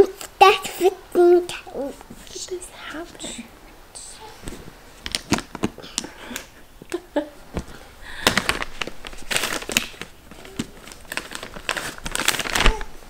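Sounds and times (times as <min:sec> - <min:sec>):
plastic package crinkling: 0:07.6 - 0:13.0.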